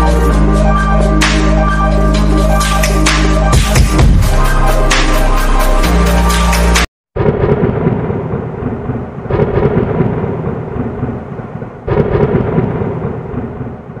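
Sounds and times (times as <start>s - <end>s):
thunder cracking and rolling: 7.2s - 14.0s.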